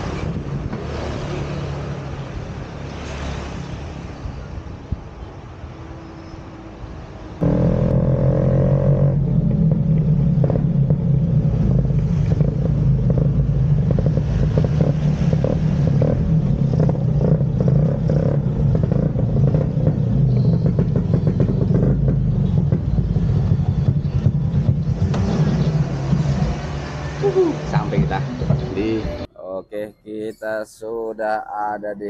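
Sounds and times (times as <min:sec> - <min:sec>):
scooter engine running: 0:07.4 - 0:26.0.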